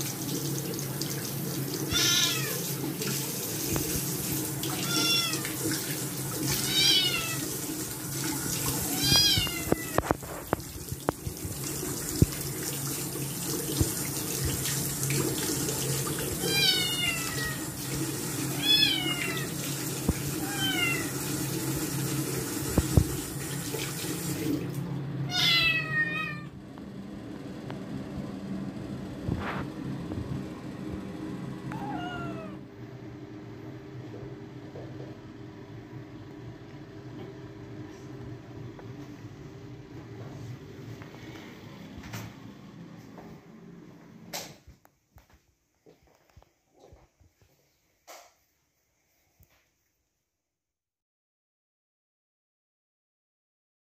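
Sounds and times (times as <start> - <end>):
sink tap running: 0.0 - 24.8
kitten meowing loudly: 1.9 - 2.6, 4.8 - 5.4, 6.5 - 7.4, 8.8 - 10.2, 16.4 - 17.6, 20.4 - 21.1, 25.3 - 26.5, 31.7 - 32.6.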